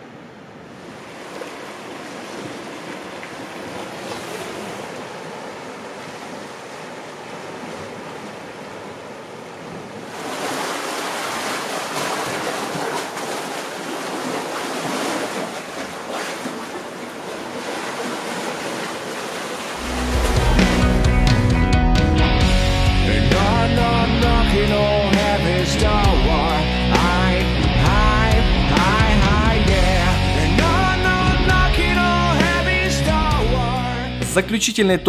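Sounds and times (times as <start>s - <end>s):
sea surf washing on shore: 0.0s - 21.5s.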